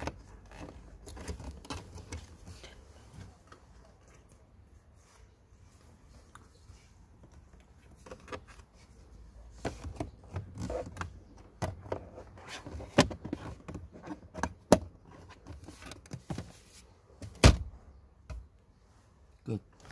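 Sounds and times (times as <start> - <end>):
hard plastic clicks and scrapes: 0.0 - 3.7.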